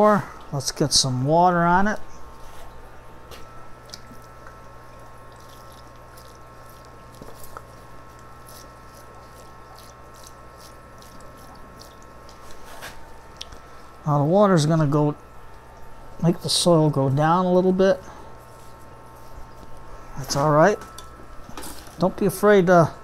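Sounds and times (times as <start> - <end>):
steady low hum: 0.0 - 23.0
water trickling into soil: 3.8 - 13.5.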